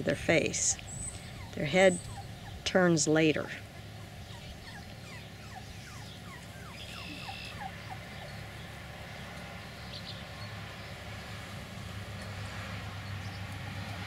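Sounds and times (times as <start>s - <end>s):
puppy whimpering: 1.0s - 2.7s, 3.7s - 8.4s.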